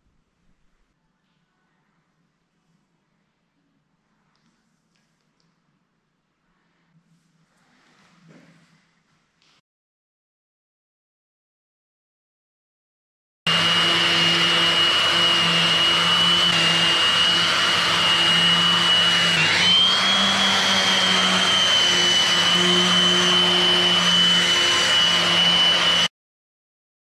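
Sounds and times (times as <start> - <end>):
orbital sander whirring: 13.5 - 26.1.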